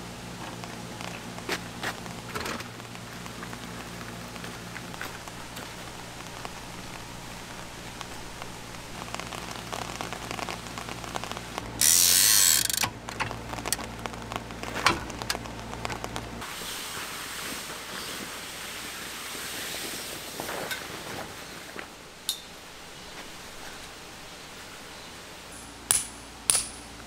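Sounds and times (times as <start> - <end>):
loud hiss: 16.4 - 21.8.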